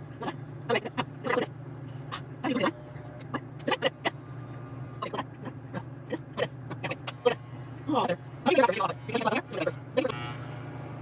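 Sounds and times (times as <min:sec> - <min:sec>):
short vocal sounds: 0:00.2 - 0:04.2
electric hair clippers buzzing: 0:09.2 - 0:11.0.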